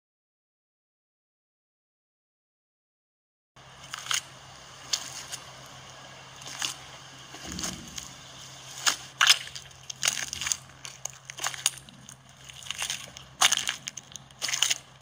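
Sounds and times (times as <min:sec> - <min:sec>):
faint low hum: 0:03.6 - 0:15.0
footsteps squelching through mud: 0:03.6 - 0:15.0.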